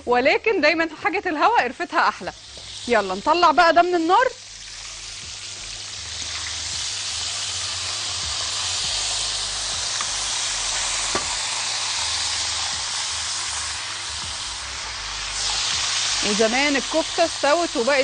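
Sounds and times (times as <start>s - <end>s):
meat sizzling in hot oil: 1.0s - 18.0s.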